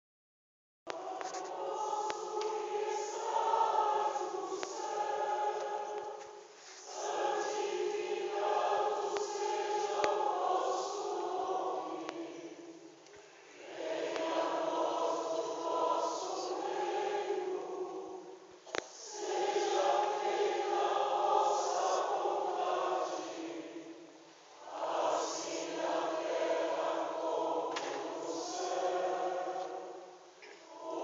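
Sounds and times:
choir singing: 0.9 - 12.9, 13.5 - 31.0.

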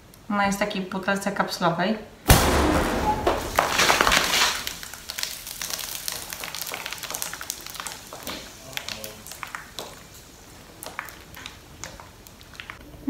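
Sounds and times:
foaming liquid gushing out: 2.6 - 9.7
liquid fizzing and dripping: 3.3 - 12.8.

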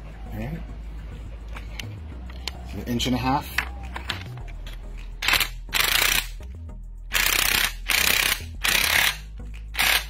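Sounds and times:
impact wrench hammering: 7.1 - 9.2.

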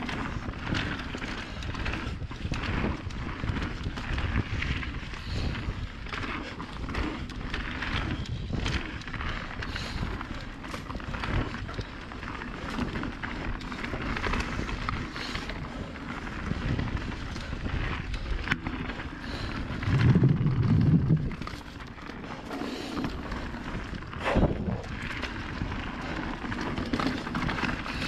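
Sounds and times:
tyres rolling over dirt: 0.0 - 28.0
wind rushing over microphone: 14.0 - 28.0.

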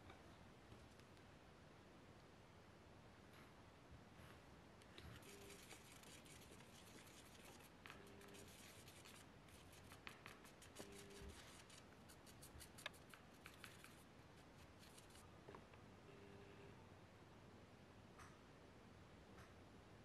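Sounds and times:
paintbrush scratching a plastic palette: 5.0 - 15.3.

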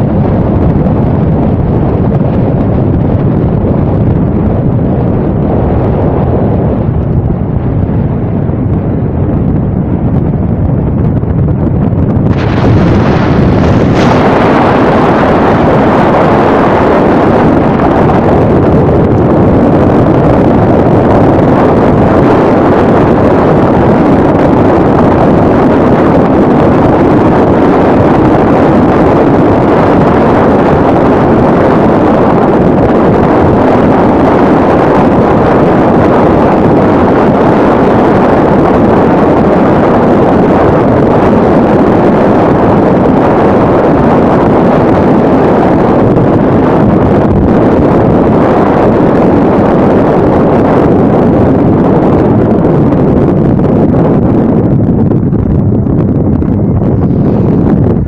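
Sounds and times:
wind and road noise inside car: 0.0 - 58.0.

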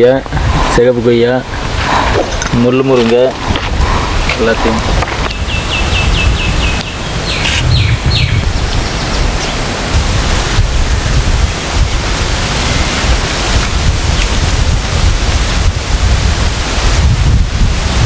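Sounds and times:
wind buffeting microphone: 0.0 - 18.0
bird chirping: 3.8 - 9.7.

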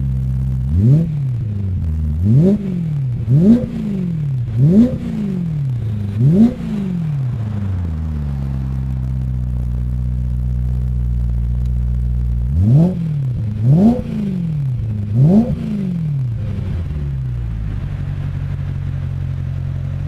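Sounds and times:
car engine idling and revving: 0.0 - 20.0.

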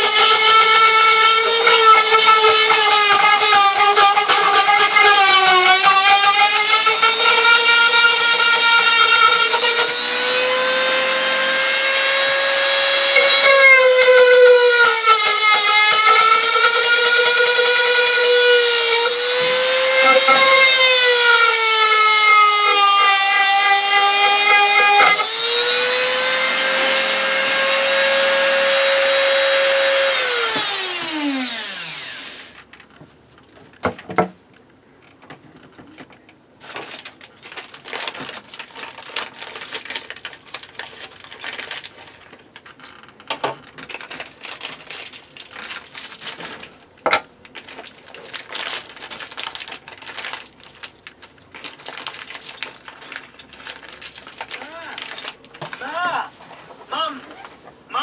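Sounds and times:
rotary tool whining: 0.0 - 32.6
plastic packet rustling: 36.6 - 56.7.

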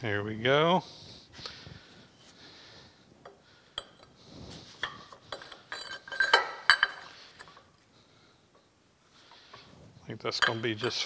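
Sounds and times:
heavy metal parts clinking: 3.7 - 7.7.

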